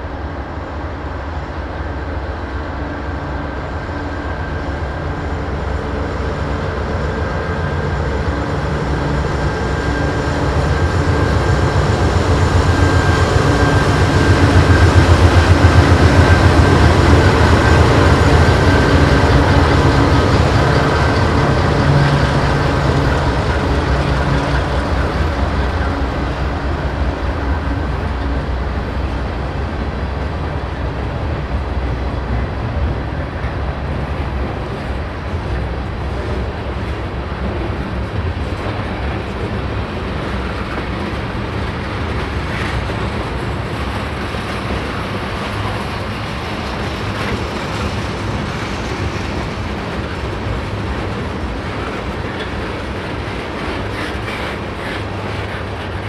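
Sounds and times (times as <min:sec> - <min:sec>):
locomotive engines droning: 0:00.0 - 0:56.0.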